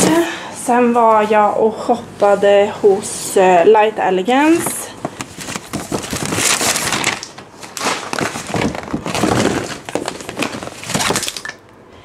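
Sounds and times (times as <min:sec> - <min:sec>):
paper bag rustling: 0:04.5 - 0:11.4.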